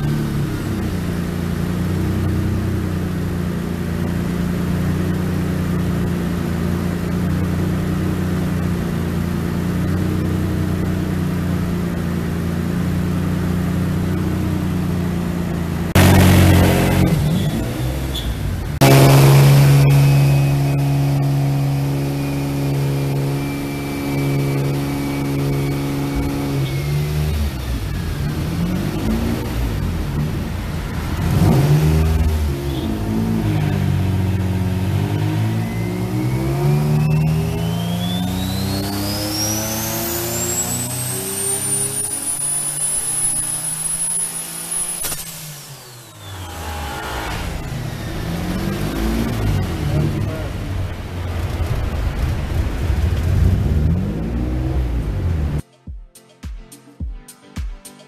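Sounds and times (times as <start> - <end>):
car engine running on dyno: 0.0 - 55.6
steady high whine: 0.0 - 55.6
faint high turbo whistle: 15.9 - 29.9, 31.1 - 50.5
sharp crack: 44.8 - 47.6.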